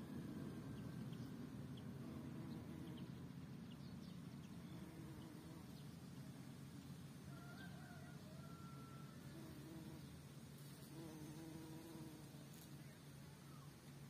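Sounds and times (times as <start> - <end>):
bumblebee buzzing: 1.9 - 3.2, 4.5 - 6.5, 9.1 - 12.8.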